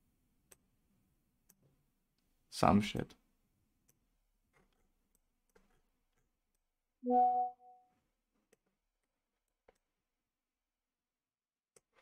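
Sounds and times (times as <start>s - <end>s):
short steady tone: 7.1s - 7.8s.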